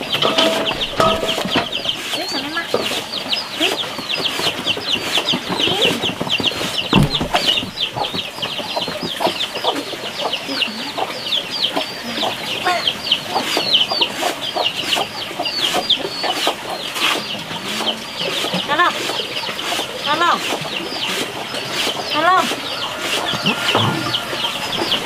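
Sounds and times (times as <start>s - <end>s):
chickens clucking: 0.0s - 25.0s
chicks peeping: 0.0s - 25.0s.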